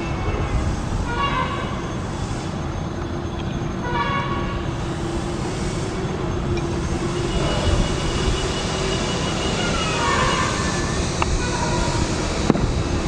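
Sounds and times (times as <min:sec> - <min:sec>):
jet engine rumble: 0:00.0 - 0:13.0
horn-like honk: 0:03.8 - 0:04.7, 0:07.0 - 0:12.0.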